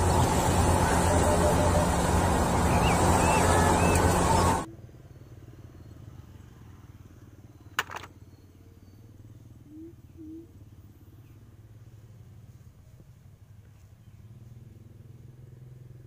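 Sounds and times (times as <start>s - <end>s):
loud machinery: 0.0s - 4.7s
low steady hum: 0.0s - 4.7s.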